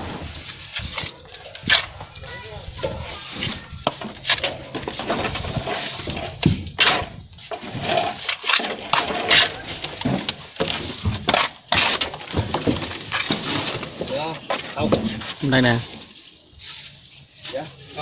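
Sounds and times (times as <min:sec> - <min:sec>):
trowel scraping wet mortar: 0:00.2 - 0:02.2, 0:03.0 - 0:12.3.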